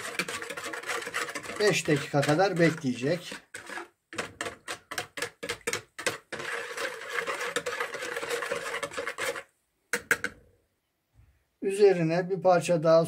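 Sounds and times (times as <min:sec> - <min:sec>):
wire whisk beating in plastic bowl: 0:00.0 - 0:10.4.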